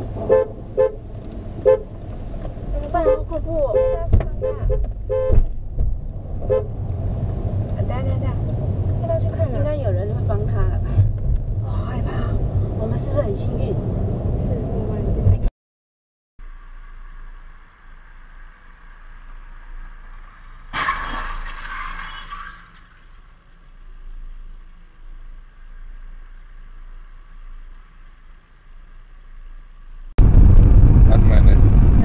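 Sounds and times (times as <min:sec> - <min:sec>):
car crash: 0:18.1 - 0:24.5
metal crunching and scraping: 0:20.2 - 0:23.5.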